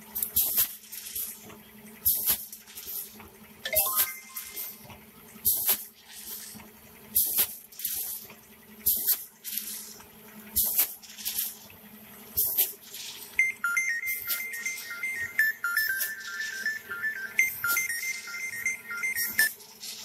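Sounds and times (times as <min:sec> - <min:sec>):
beeping electronic tune: 0:03.7 - 0:04.9, 0:13.4 - 0:19.6.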